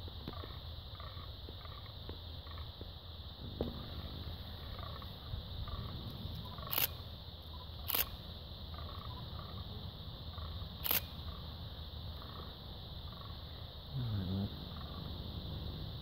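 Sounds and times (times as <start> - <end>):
sharp clicks: 6.1 - 7.0, 7.8 - 8.2, 10.8 - 11.2.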